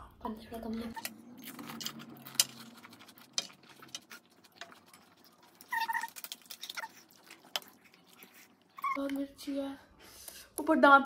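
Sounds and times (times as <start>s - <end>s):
crunching while chewing: 1.0s - 9.0s.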